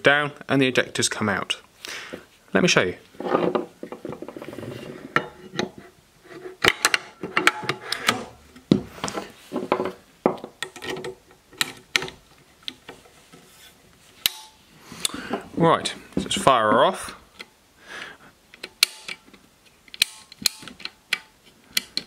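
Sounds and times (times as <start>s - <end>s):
shotgun metallic clicks and knocks: 18.6s - 22.0s.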